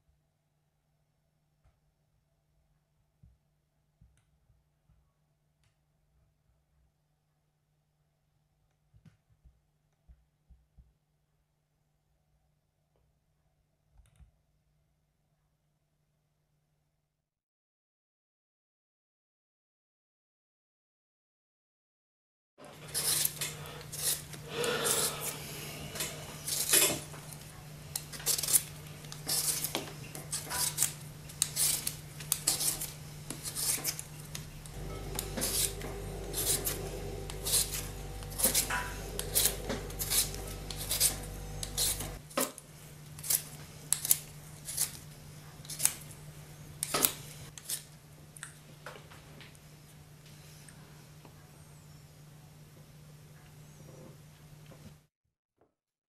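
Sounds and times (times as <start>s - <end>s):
low steady hum: 22.6s - 43.2s
knife scraping potato peel: 22.7s - 42.4s, 43.1s - 48.0s.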